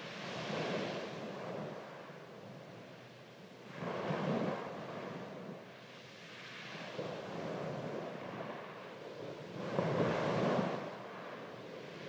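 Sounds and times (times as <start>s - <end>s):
waves washing: 6.4s - 12.0s.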